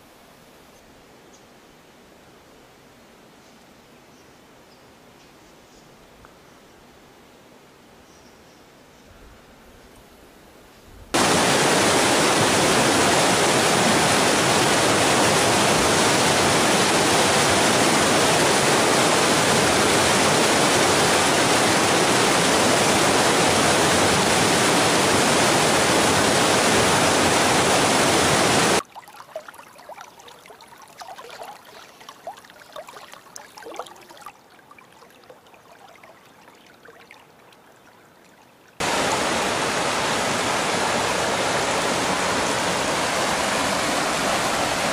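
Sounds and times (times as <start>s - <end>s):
whitewater rushing over boulders: 11.2s - 28.8s, 38.8s - 44.9s.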